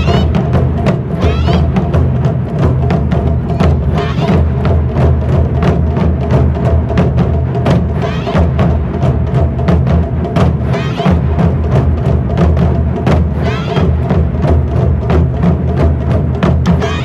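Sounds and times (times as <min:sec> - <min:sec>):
drummers shouting calls: 0:00.0 - 0:02.0, 0:03.4 - 0:04.8, 0:07.7 - 0:08.8, 0:10.4 - 0:11.5, 0:13.1 - 0:14.4, 0:16.6 - 0:17.0
taiko drums playing: 0:00.0 - 0:17.0.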